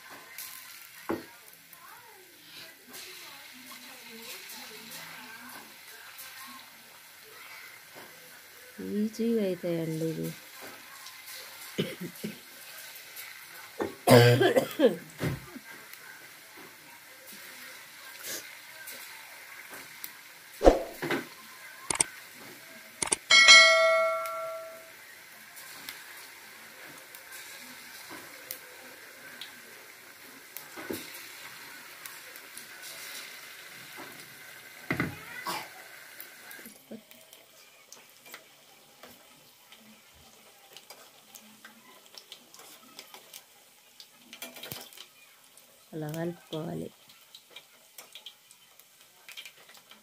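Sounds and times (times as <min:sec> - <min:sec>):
oil frying faintly: 0:00.0 - 0:50.0
sharp mouse clicks: 0:23.0 - 0:23.2
bell ding: 0:23.3 - 0:24.9.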